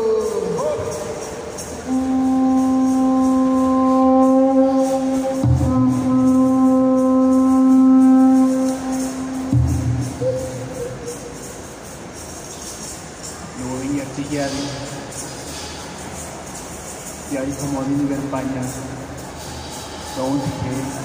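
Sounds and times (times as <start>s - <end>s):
band holding long note: 1.8s - 11.8s.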